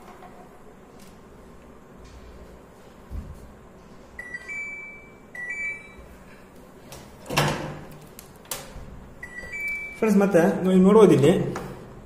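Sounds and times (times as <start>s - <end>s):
washing machine two-note beeps: 4.2s - 6.1s, 9.2s - 10.4s.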